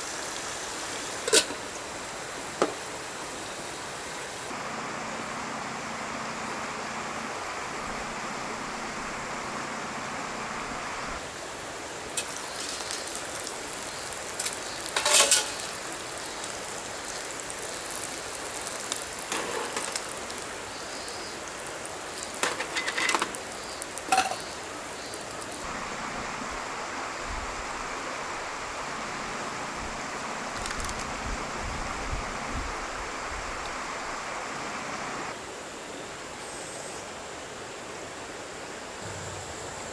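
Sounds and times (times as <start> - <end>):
camp stove hissing: 0.0 - 4.6, 11.2 - 25.7, 35.3 - 39.9
metal cookware clinking: 14.4 - 15.7, 24.1 - 24.4.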